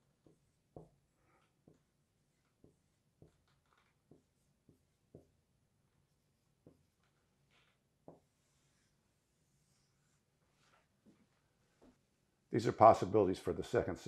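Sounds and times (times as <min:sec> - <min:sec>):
marker tapping and scratching whiteboard: 0:00.0 - 0:10.2.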